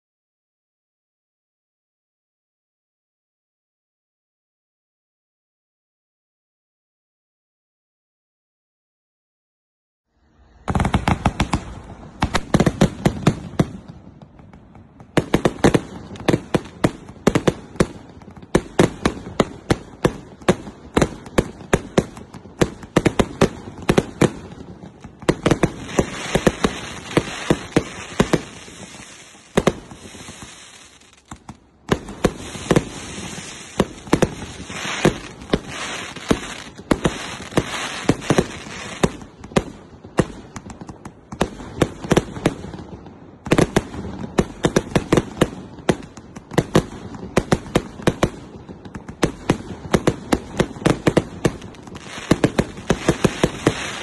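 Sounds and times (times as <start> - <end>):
continuous firework hiss: 10.3 - 54.0
firework launch and burst cracks: 18.8 - 42.6, 49.0 - 54.0.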